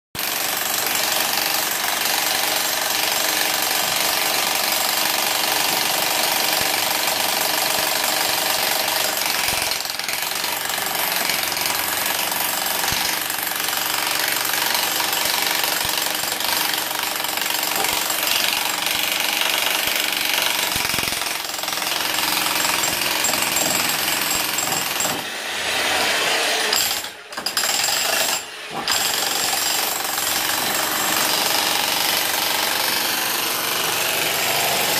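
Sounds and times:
demolition hammer breaking concrete: 0:00.2 - 0:25.3, 0:26.2 - 0:34.9.

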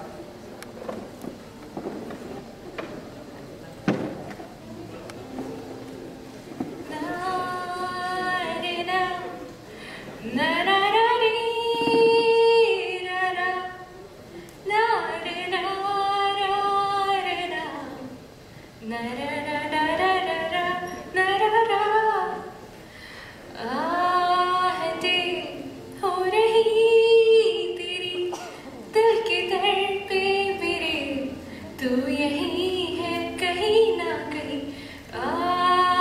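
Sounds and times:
woman singing: 0:06.9 - 0:09.5, 0:10.2 - 0:13.9, 0:14.6 - 0:18.2, 0:18.8 - 0:22.6, 0:23.5 - 0:36.0.

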